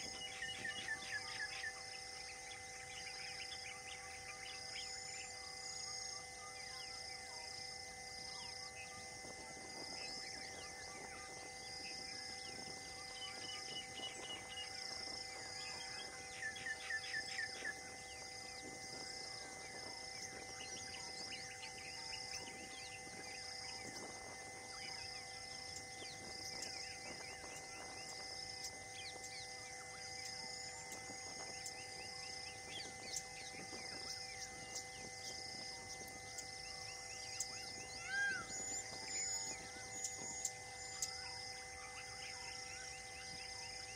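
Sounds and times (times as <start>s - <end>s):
bird chirps: 0.0s - 7.0s, 8.3s - 43.9s
high insect-like pulse: 0.0s - 43.9s.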